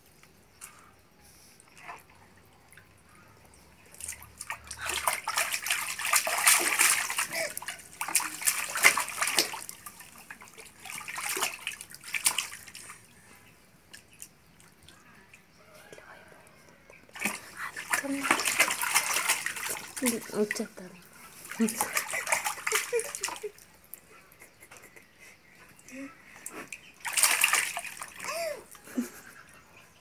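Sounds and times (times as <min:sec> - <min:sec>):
hands splashing water in a tub: 0:03.8 - 0:13.2, 0:17.1 - 0:23.7, 0:26.6 - 0:28.6.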